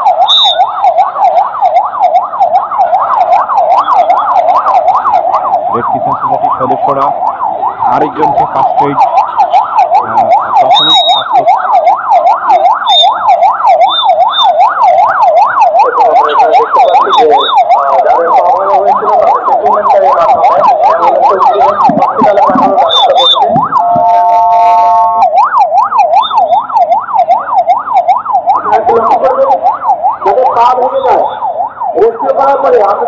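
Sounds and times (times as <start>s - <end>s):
siren horn-like blast: 0.0s - 1.0s, 9.0s - 11.9s, 12.5s - 14.8s, 21.1s - 26.9s
ambulance siren yelping: 0.0s - 33.0s.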